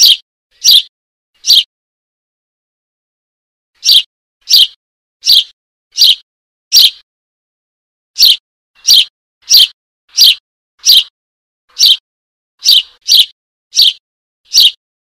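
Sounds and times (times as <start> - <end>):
young sparrow begging chirps: 0.0 - 1.7, 3.8 - 7.0, 8.2 - 11.1, 11.7 - 12.0, 12.6 - 14.8.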